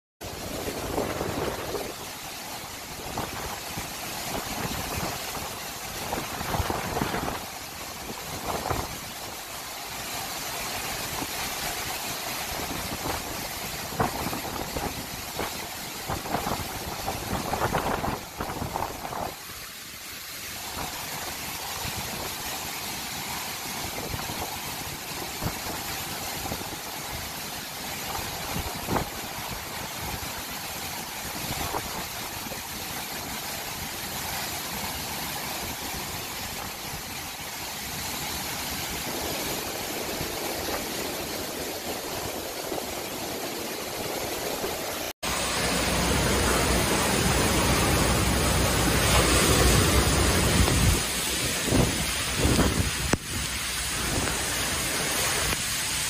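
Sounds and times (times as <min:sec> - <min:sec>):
gale wind rushing: 0:00.2 - 0:09.5, 0:38.0 - 0:56.0
waves breaking against seawall: 0:00.2 - 0:56.0
wind and heavy rain: 0:00.2 - 0:56.0.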